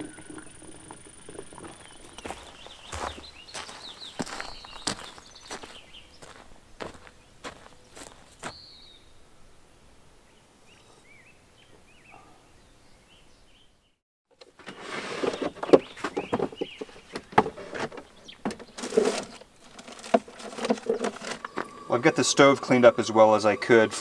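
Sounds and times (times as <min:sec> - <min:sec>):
faint bird chirps: 0:01.6 - 0:06.4
soft footsteps: 0:01.6 - 0:08.6
cooking gear clattering: 0:17.5 - 0:21.7.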